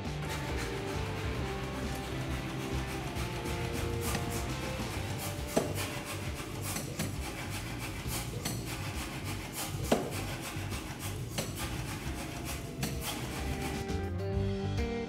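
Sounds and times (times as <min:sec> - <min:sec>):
steel tool scraping hot metal bar: 0:00.2 - 0:14.0.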